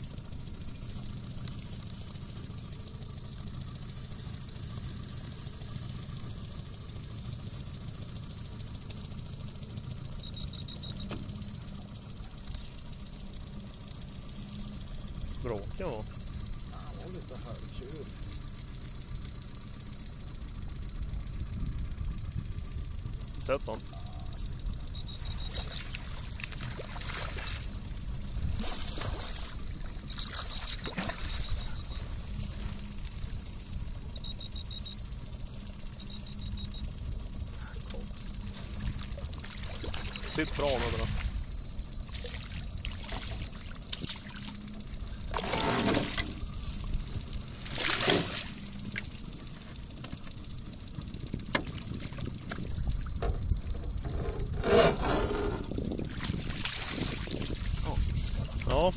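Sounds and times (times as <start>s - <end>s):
low steady rumble: 0.0s - 58.9s
fish splashing in water: 25.2s - 27.8s, 28.5s - 31.8s, 38.6s - 41.4s, 47.5s - 49.2s, 56.1s - 57.8s
landing net swept into water: 47.6s - 48.6s.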